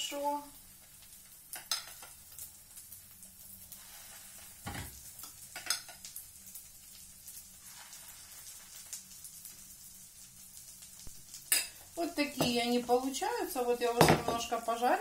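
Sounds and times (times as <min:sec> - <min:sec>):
batter sizzling in frying pan: 0:00.0 - 0:15.0
spoon knocking bowl and pan: 0:11.5 - 0:12.7, 0:14.0 - 0:14.5.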